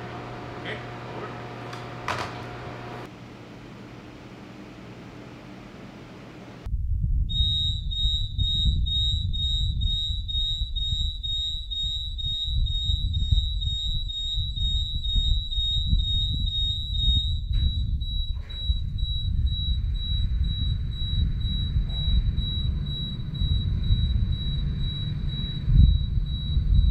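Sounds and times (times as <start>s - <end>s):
steady low rumble: 6.6s - 26.9s
shrill pulsing electronic alarm: 7.3s - 26.9s.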